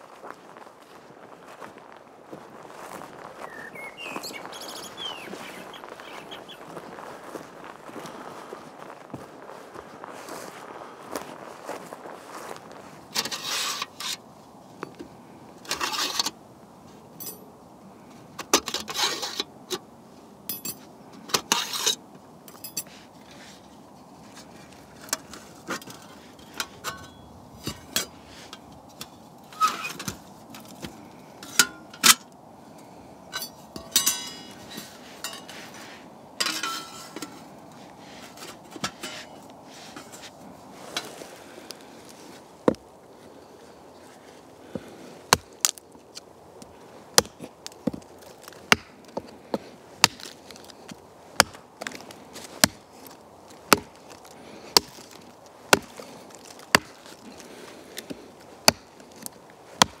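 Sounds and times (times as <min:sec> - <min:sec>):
metal plates clinking: 0:20.5 - 0:20.8, 0:25.8 - 0:28.2, 0:33.3 - 0:35.6, 0:36.4 - 0:37.5
axe chopping into wood: 0:52.6 - 0:52.8, 0:53.7 - 0:54.0, 0:54.8 - 0:55.1, 0:55.7 - 0:57.0, 0:58.6 - 0:58.9, 0:59.8 - 1:00.0.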